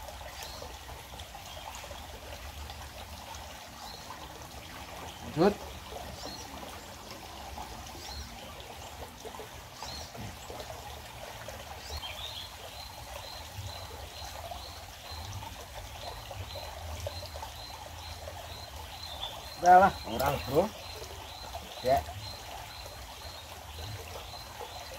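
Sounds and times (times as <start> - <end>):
stream trickling: 0.0 - 24.9.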